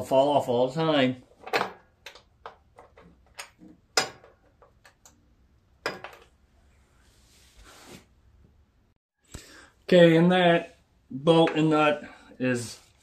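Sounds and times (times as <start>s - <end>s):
soft rustle: 6.7s - 8.1s.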